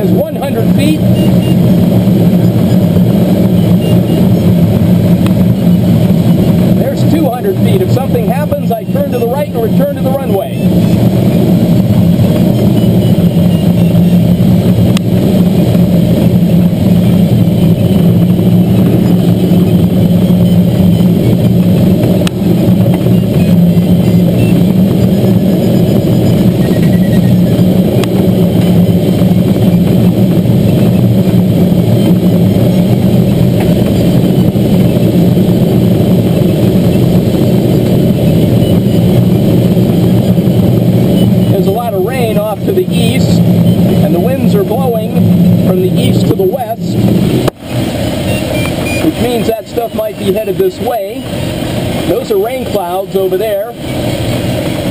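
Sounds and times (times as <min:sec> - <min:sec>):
plane engine and propeller drone: 0:00.0 - 0:54.9
air rushing over canopy: 0:27.2 - 0:52.2.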